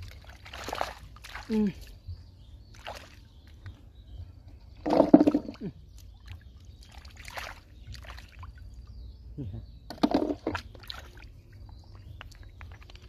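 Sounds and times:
hands splashing in muddy water: 0.0s - 2.0s, 2.7s - 3.2s, 6.8s - 8.5s.

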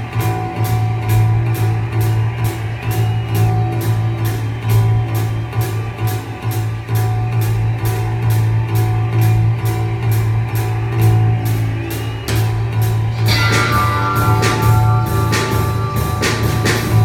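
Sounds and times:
instrumental rock music: 0.0s - 17.0s
low bass note: 13.2s - 17.0s.

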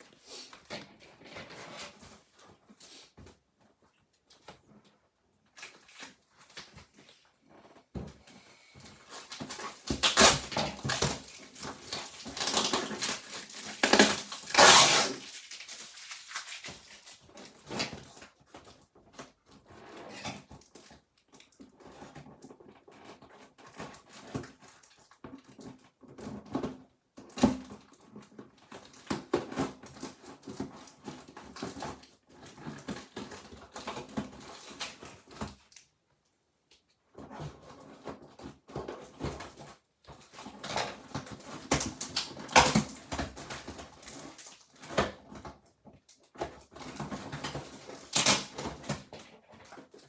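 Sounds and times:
tape and cardboard crackling: 4.2s - 35.9s, 36.8s - 50.0s
packing tape ripping: 9.2s - 17.9s, 47.7s - 49.0s.

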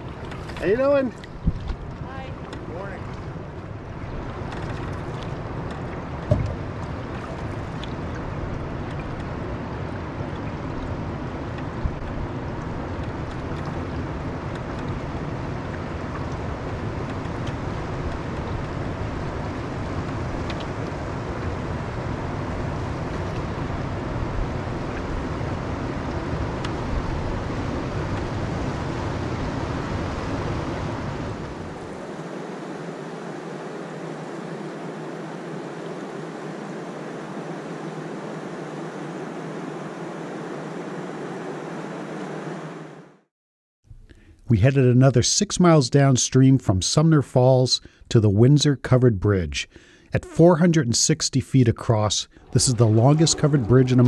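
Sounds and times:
wind rumble on microphone: 0.0s - 42.8s
water rushing around canoe: 0.0s - 43.0s, 51.8s - 54.0s.

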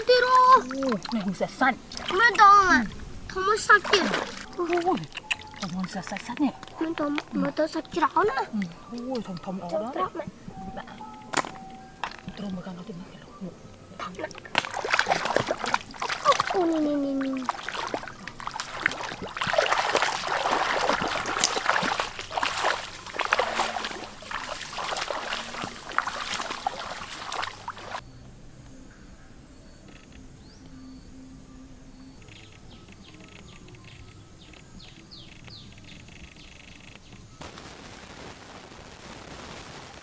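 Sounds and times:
feet splashing through water: 0.0s - 9.3s, 14.0s - 28.0s
faint high chirps: 28.0s - 37.4s.

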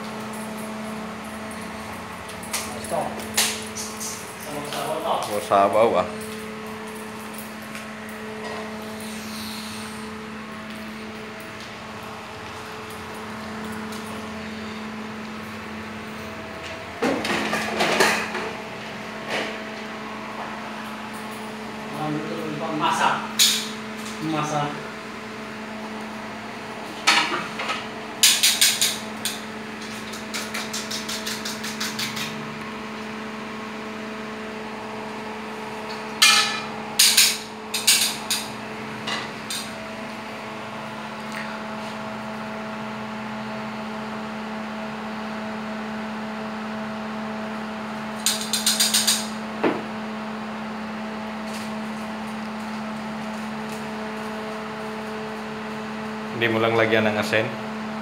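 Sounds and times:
utensils knocking against pans: 27.1s - 32.3s, 36.2s - 38.5s.

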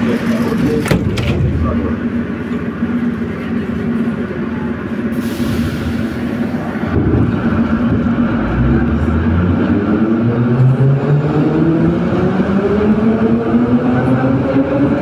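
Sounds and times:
metro car equipment hum: 0.0s - 15.0s
air hiss: 5.1s - 6.3s.

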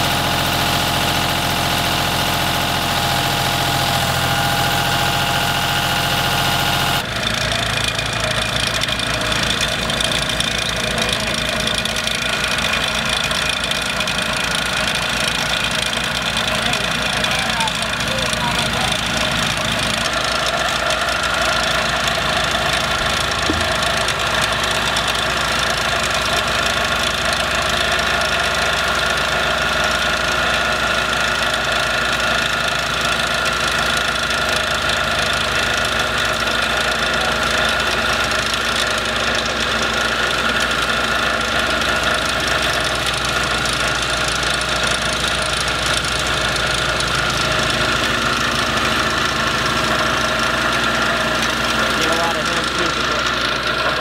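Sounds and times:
held steady tones: 0.0s - 28.8s
engine running steadily: 0.0s - 54.0s.

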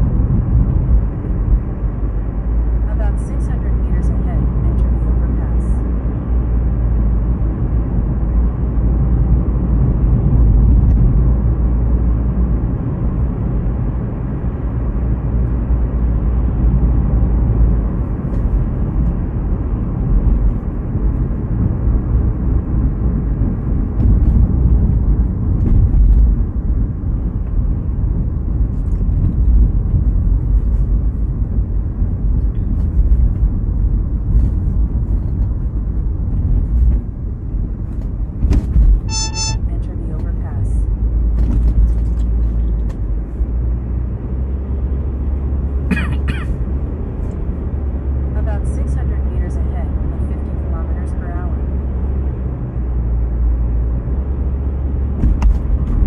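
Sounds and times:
car driving rumble: 0.0s - 56.0s.

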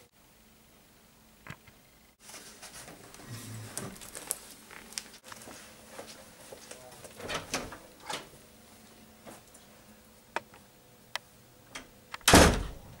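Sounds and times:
footsteps walking away: 2.2s - 7.3s
wooden door banging shut: 12.2s - 12.9s.

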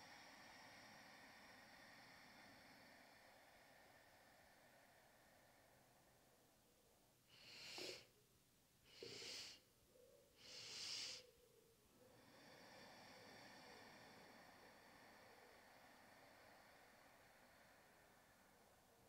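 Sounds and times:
person inhaling sharply: 7.3s - 8.1s, 8.9s - 9.7s, 10.4s - 11.4s.

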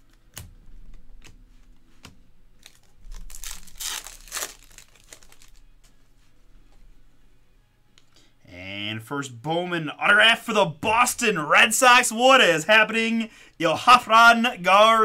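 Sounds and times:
wrapper torn open and crinkled: 2.6s - 5.8s.

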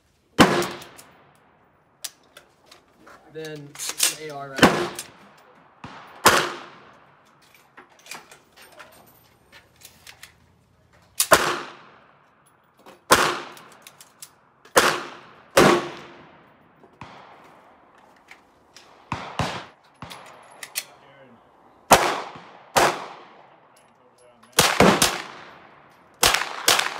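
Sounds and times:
handgun shots: 11.2s - 11.9s.

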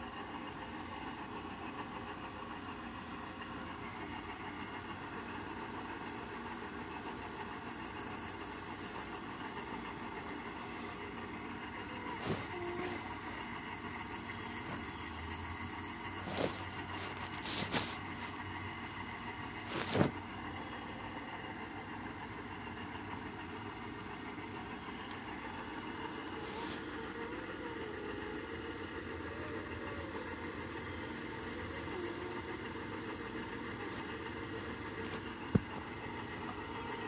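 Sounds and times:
cat purring: 12.0s - 15.1s.

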